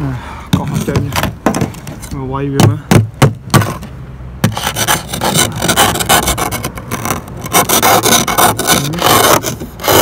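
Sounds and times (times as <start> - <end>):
plastic scraper scraping ice: 4.4 - 10.0.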